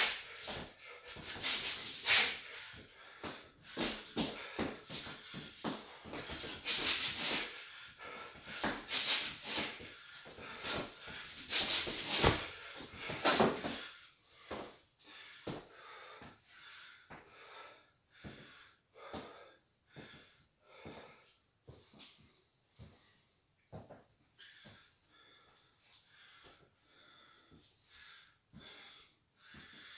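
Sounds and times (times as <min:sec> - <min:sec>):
man's sharp hissing exhalations: 0:00.0 - 0:20.2
man panting: 0:00.0 - 0:29.9.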